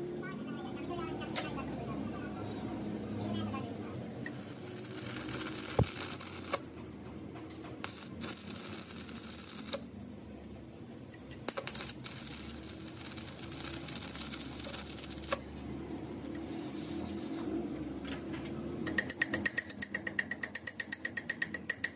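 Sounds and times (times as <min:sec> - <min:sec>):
welding arc crackling: 0:04.2 - 0:06.8, 0:07.8 - 0:15.4.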